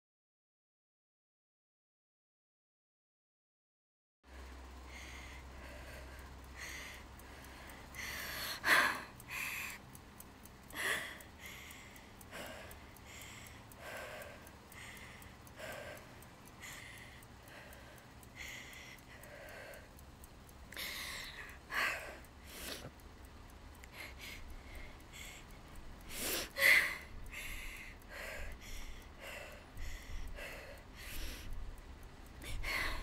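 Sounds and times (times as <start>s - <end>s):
woman breathing hard: 4.4s - 9.8s, 10.7s - 20.0s, 20.7s - 23.0s, 23.8s - 31.6s, 32.4s - 33.0s
woman gasping: 26.1s - 31.5s.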